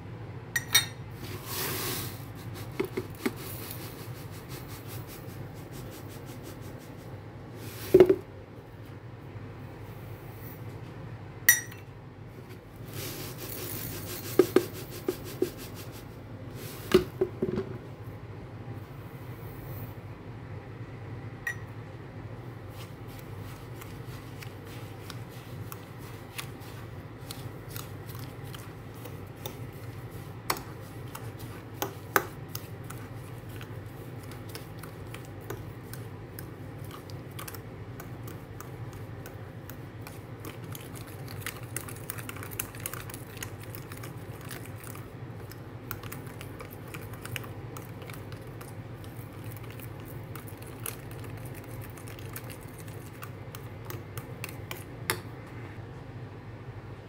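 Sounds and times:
steady low hum: 0.0 - 57.0
fork clinking on bowl: 0.6 - 1.0, 11.5 - 11.8, 21.5 - 21.7.

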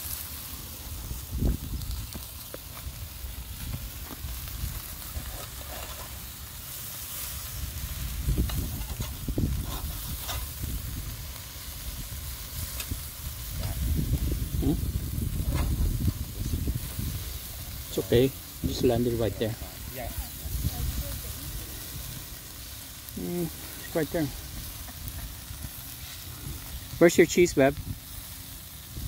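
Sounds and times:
patties sizzling on grill: 0.0 - 29.0
metal spatula scraping grate: 5.1 - 6.3, 8.4 - 10.6.

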